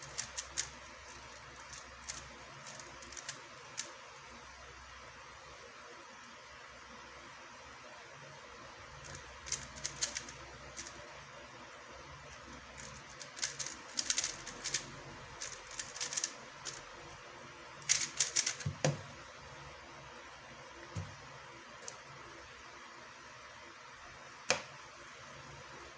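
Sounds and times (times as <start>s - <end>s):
puzzle cube layers clicking: 0.0s - 4.0s, 9.0s - 11.0s, 12.6s - 16.8s, 17.8s - 19.0s.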